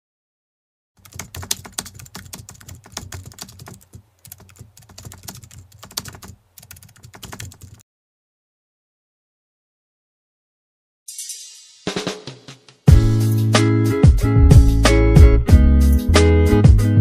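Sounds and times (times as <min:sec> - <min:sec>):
keyboard typing clicks: 0:01.0 - 0:07.8.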